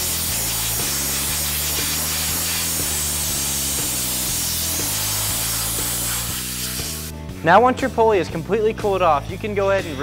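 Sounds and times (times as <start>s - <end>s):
compressed air hissing: 0.0s - 7.3s.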